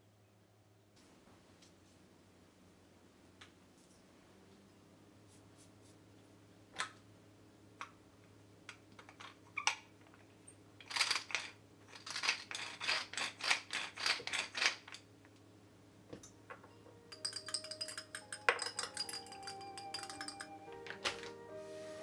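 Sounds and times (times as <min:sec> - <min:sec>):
seeds rattling in a container: 0:10.8 - 0:15.0.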